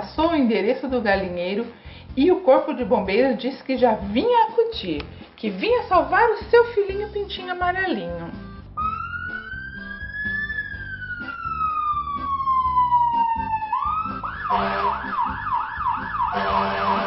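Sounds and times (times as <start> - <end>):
fire truck siren wailing: 8.8 - 17.0.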